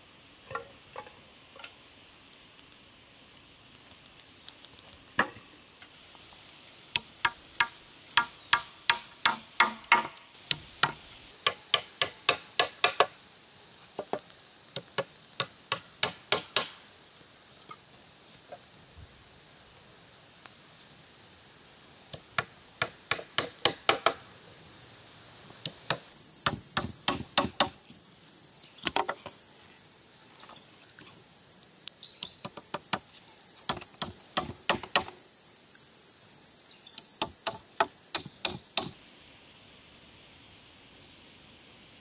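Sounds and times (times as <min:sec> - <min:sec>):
high insect drone: 0:00.0 - 0:13.7, 0:25.9 - 0:42.0
wood knocking on wooden poles: 0:05.2 - 0:05.4, 0:07.0 - 0:13.1, 0:14.0 - 0:14.2, 0:22.4 - 0:24.2, 0:25.9 - 0:27.8, 0:28.9 - 0:29.4, 0:33.7 - 0:35.2, 0:37.2 - 0:38.9.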